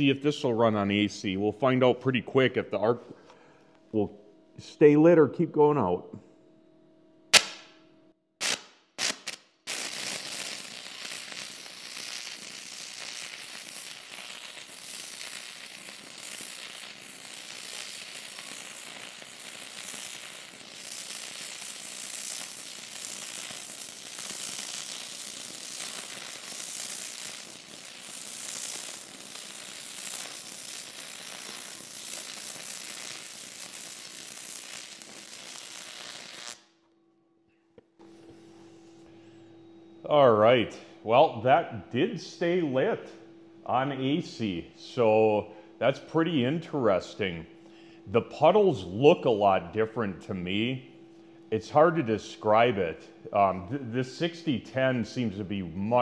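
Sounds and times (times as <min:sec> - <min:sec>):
welding arc crackling: 0:07.3 - 0:07.8, 0:08.4 - 0:36.8, 0:53.4 - 0:56.0.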